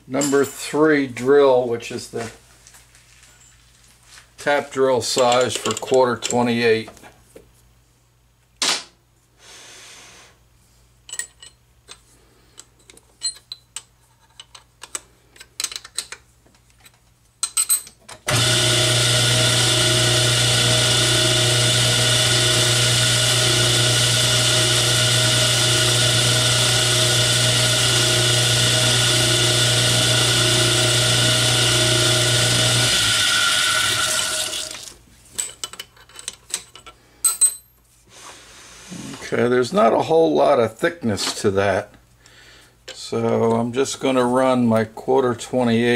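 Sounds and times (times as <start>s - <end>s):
lathe running: 18.3s - 34.9s.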